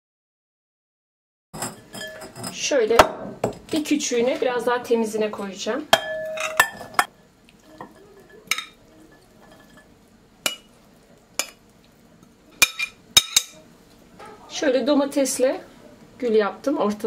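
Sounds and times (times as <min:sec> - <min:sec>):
spoon clinking on glass bowls: 0:01.6 - 0:02.6, 0:06.0 - 0:07.1, 0:07.7 - 0:09.9, 0:10.5 - 0:10.7, 0:12.6 - 0:13.6.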